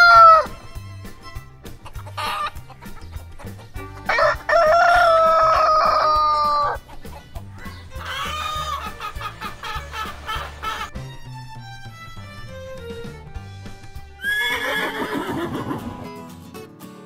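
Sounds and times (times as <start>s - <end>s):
rooster crowing: 0.0s - 0.5s, 4.1s - 6.8s
background music with steady beat: 0.0s - 17.0s.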